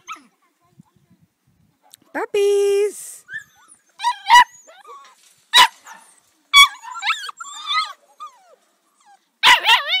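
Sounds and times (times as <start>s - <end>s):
puppies yipping and whining: 3.2s - 10.0s.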